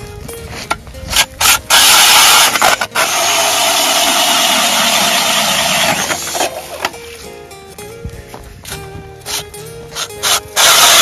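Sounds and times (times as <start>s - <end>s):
blades shaving ice: 1.1s - 6.9s, 10.2s - 11.0s
drill motor: 1.4s - 6.6s, 10.0s - 11.0s.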